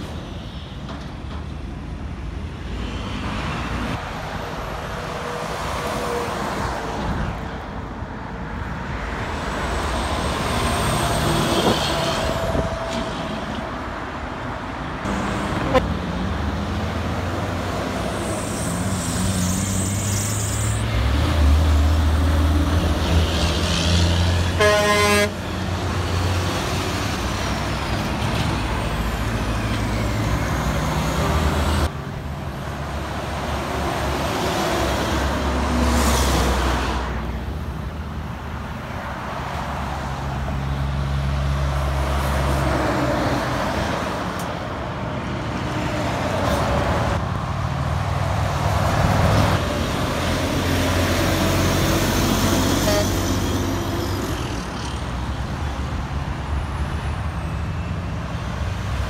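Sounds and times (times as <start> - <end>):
diesel trucks passing: 0.0 - 59.0
truck horn toot: 24.5 - 25.4, 52.8 - 53.6.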